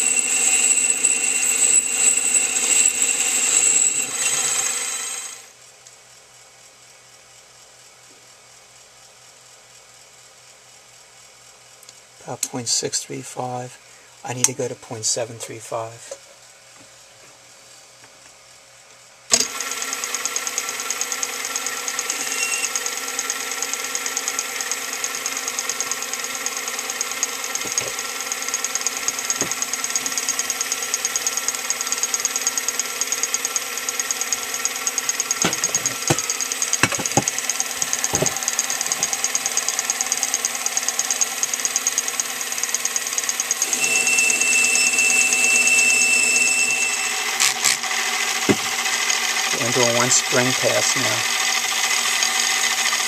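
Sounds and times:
thin high tone: 0.0s - 5.4s, 22.0s - 22.8s, 43.6s - 47.8s
lathe motor whine: 0.0s - 5.6s, 19.3s - 53.0s.

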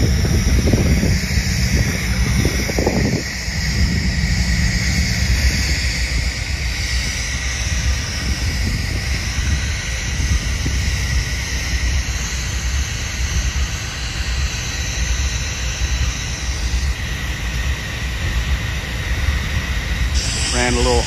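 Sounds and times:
diesel locomotive engine idling: 0.0s - 21.0s
fan-like hiss: 0.0s - 21.0s.

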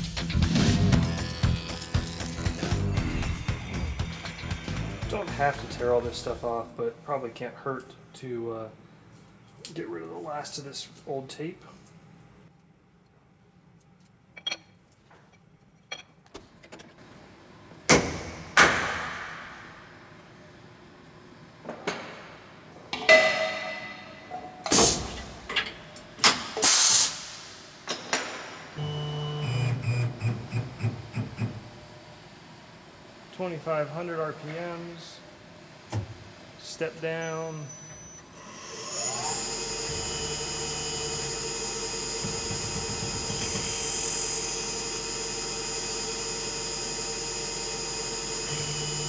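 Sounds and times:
milling machine spindle whine: 36.8s - 49.0s.

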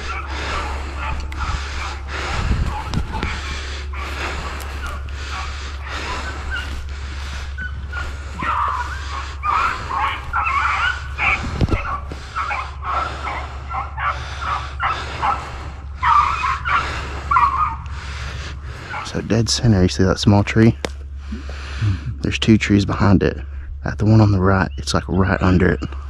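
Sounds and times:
footsteps through dry grass: 0.0s - 19.9s
beagles baying and yipping: 0.0s - 21.2s
low steady rumble: 0.0s - 26.0s.

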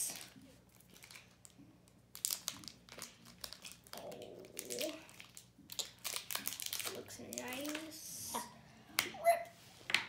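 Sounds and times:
plastic wrapper crinkling: 0.0s - 8.0s.

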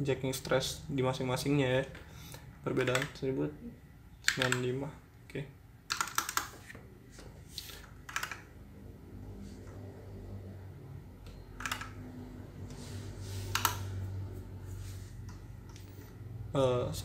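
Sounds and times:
faint low hum: 0.0s - 17.0s
computer keyboard keystrokes: 2.7s - 3.2s, 4.2s - 4.7s, 5.9s - 6.6s, 7.8s - 8.5s, 11.2s - 12.0s, 13.5s - 13.9s.

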